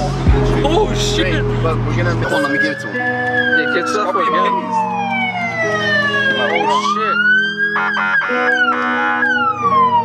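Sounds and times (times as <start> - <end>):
music on car stereo: 0.0 - 10.0
police siren wailing: 2.1 - 10.0.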